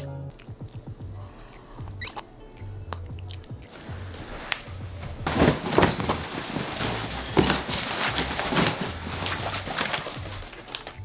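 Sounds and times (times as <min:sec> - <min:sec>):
background music with bass pulse: 0:00.0 - 0:11.0
clothes rustling into a bag: 0:03.7 - 0:11.0.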